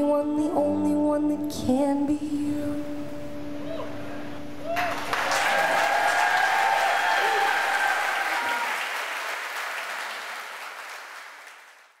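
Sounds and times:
whistles and whoops: 0:04.7 - 0:08.9
audience applauding and cheering: 0:04.7 - 0:12.0.

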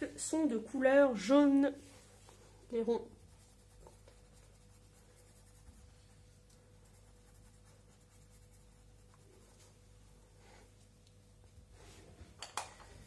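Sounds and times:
pencil scratching on paper: 0:03.1 - 0:10.2.

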